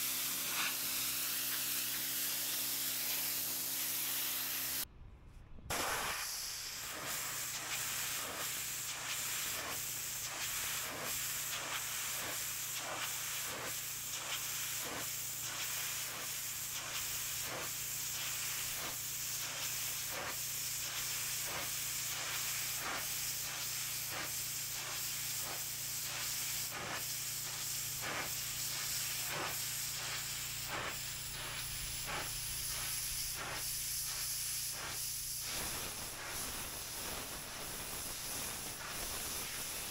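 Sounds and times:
pressure washer spray hissing: 0.0s - 4.8s, 5.7s - 39.9s
low hum: 4.9s - 5.7s.

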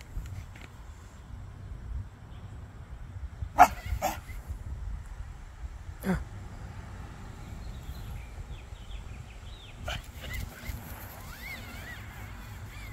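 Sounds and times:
dog whimpering: 3.6s - 4.4s.

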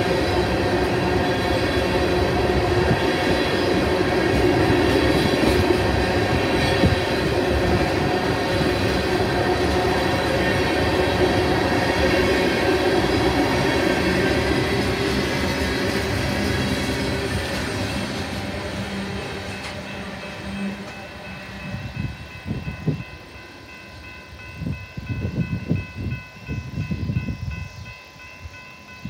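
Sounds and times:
train wheels rumbling and clattering: 0.0s - 27.9s
crossing bell ringing: 17.3s - 29.0s.

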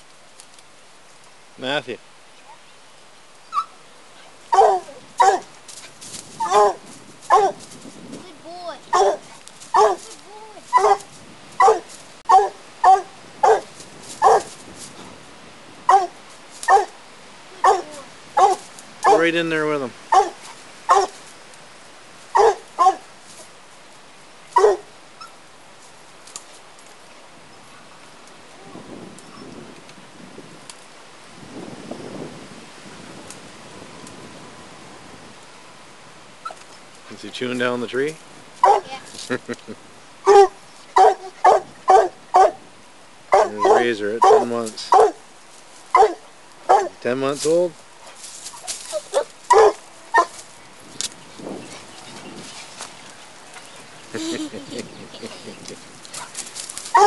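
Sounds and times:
dog barking: 4.5s - 5.5s, 6.4s - 7.6s, 8.9s - 10.1s, 10.7s - 14.5s, 15.9s - 17.0s, 17.6s - 19.3s, 20.1s - 21.2s, 22.3s - 23.0s, 24.6s - 24.9s, 38.6s - 38.9s, 40.2s - 42.6s, 43.3s - 45.2s, 45.9s - 47.0s, 49.1s - 50.3s.

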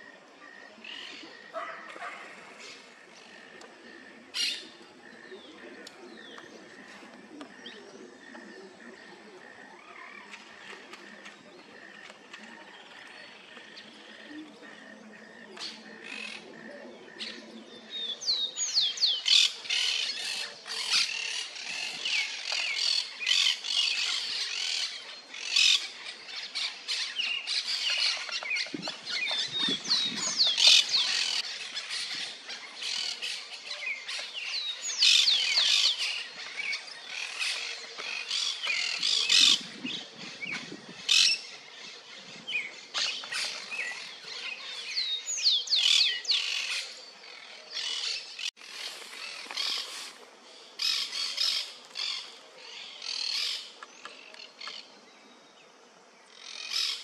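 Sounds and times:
birds chirping and squawking: 0.0s - 55.0s, 56.2s - 57.0s.

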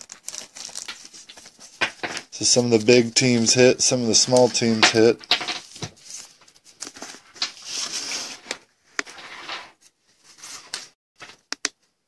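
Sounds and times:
plastic sleeve rustling: 0.0s - 8.5s.

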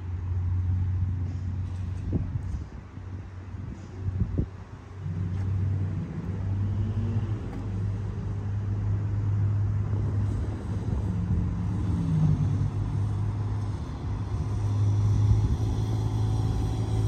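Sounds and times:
motor engine humming: 5.0s - 17.0s.

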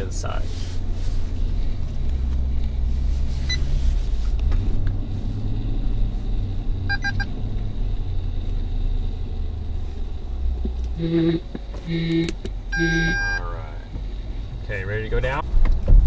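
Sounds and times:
truck engine rumbling: 0.0s - 16.0s
parking sensor beeps: 3.4s - 3.7s, 6.8s - 7.3s, 11.0s - 13.5s.

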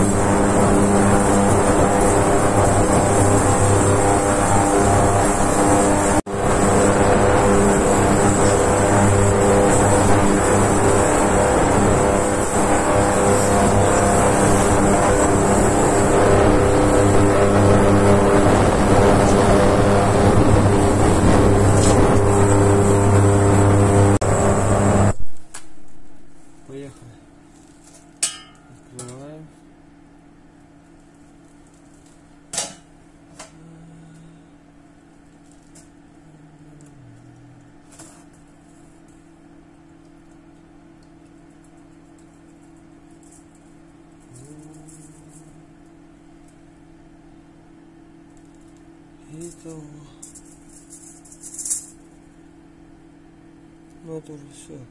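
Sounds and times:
ultrasonic cleaner humming: 0.0s - 26.4s, 36.1s - 38.3s, 43.2s - 46.1s.

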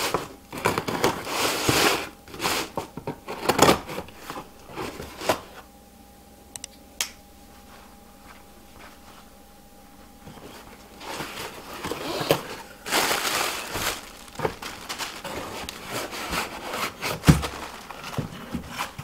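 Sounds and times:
plastic packing crinkling: 10.0s - 19.0s.

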